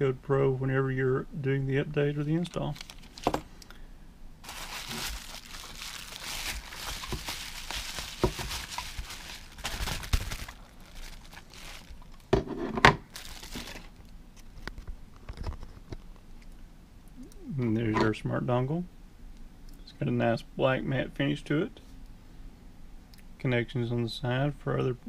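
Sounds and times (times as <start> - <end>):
bubble wrap crinkling: 2.6 - 3.4, 4.4 - 12.4, 13.0 - 16.1.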